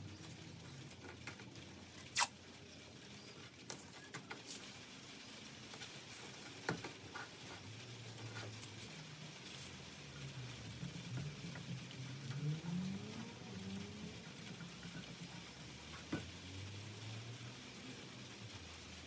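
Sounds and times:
masking tape ripping: 0:02.0 - 0:02.4.

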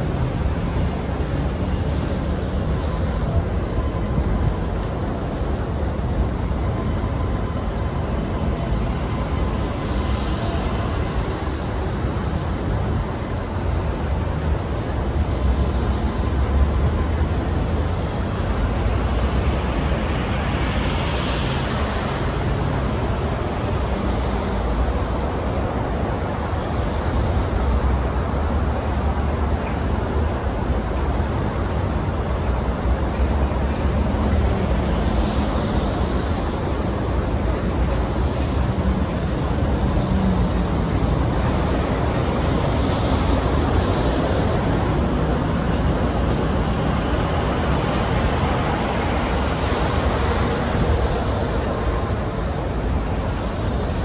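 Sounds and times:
steel wheels rumbling on rail: 0:21.5 - 0:54.0.

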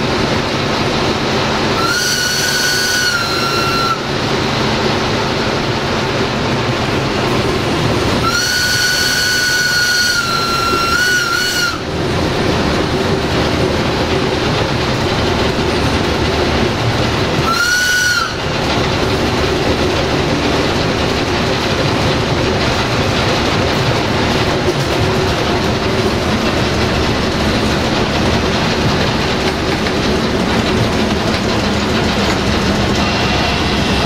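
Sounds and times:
locomotive running noise: 0:00.0 - 0:34.0
locomotive horn blast: 0:01.8 - 0:04.1, 0:08.2 - 0:11.9, 0:17.4 - 0:18.5, 0:32.9 - 0:34.0.

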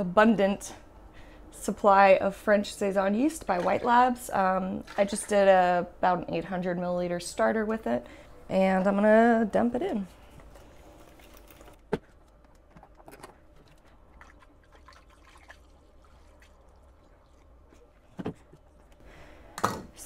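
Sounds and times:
liquid pouring: 0:13.6 - 0:18.0.

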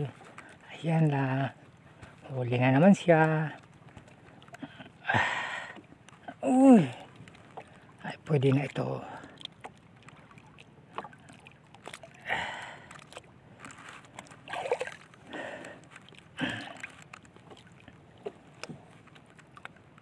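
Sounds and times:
water splashing against boat: 0:00.0 - 0:20.0.

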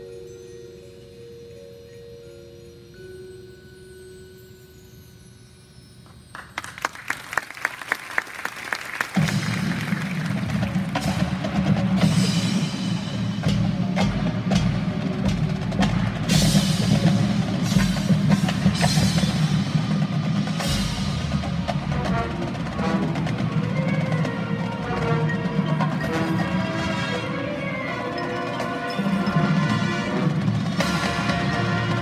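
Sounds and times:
marching band playing: 0:07.1 - 0:32.0.

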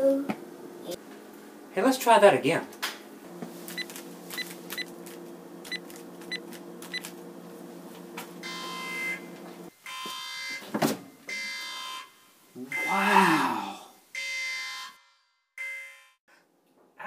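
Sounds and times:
steady low hum: 0:00.5 - 0:09.7
buzzing electronic tone: 0:08.4 - 0:09.3.

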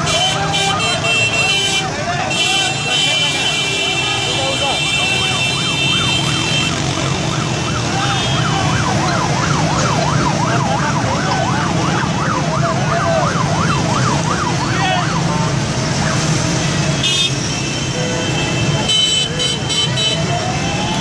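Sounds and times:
siren in a fast yelp: 0:04.0 - 0:16.3.

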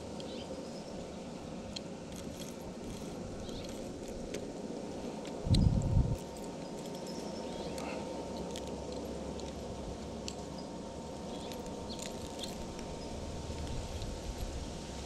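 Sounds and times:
fishing reel clicks and rustles: 0:01.7 - 0:04.4.

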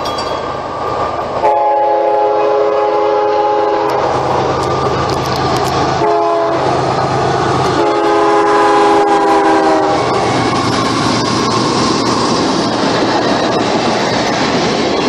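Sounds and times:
train passing at high speed: 0:00.0 - 0:15.0
locomotive air horn blast: 0:01.4 - 0:04.2, 0:06.0 - 0:06.7, 0:07.8 - 0:10.1.

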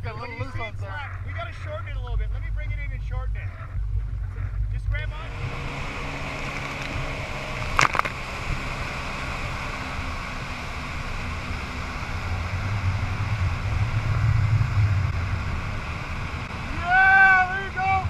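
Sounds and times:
boat engine running: 0:00.0 - 0:18.0
wind on microphone: 0:00.0 - 0:18.0
rush of wake water: 0:05.3 - 0:18.0.

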